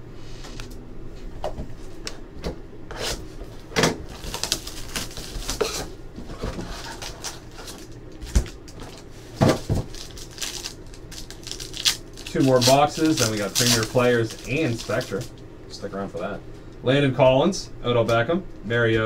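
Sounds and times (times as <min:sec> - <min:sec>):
cardboard and wrappers rustling: 0:03.5 - 0:15.4.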